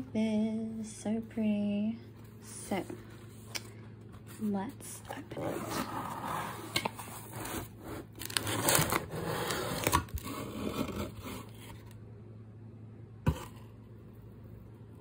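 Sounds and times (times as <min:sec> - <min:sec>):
cardboard and paper rustling: 0:04.1 - 0:12.0.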